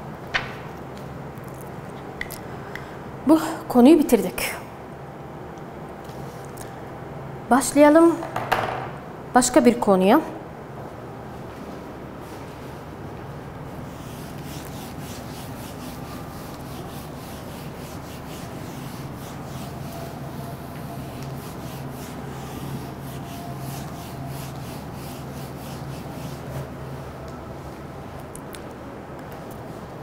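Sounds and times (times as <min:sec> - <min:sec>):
eraser wiping whiteboard: 0:13.8 - 0:26.8.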